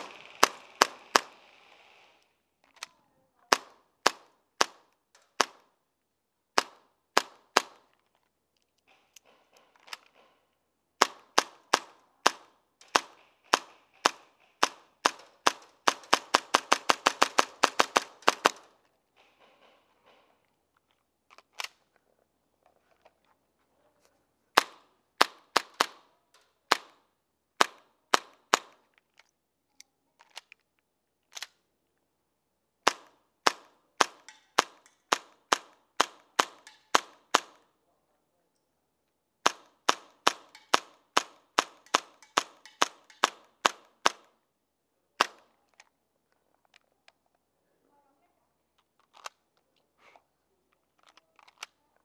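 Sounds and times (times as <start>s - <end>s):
airsoft pistol shots: 0.0s - 1.4s.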